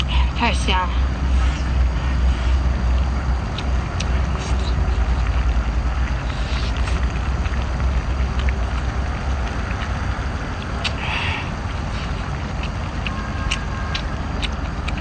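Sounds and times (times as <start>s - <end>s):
steady low rumble: 0.0s - 15.0s
person chewing: 1.2s - 15.0s
slurp: 3.6s - 14.1s.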